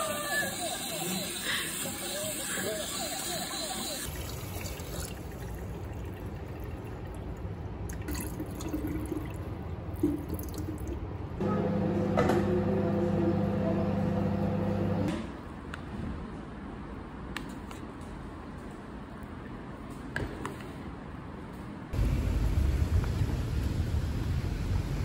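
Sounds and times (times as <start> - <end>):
water splashing into sink: 4.1 - 11.0
microwave oven humming: 11.4 - 15.3, 22.0 - 25.0.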